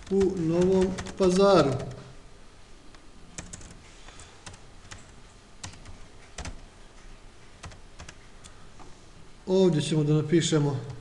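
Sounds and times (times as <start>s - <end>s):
keyboard keystrokes: 0.0s - 2.0s, 3.4s - 3.8s, 4.4s - 6.6s, 7.6s - 8.6s.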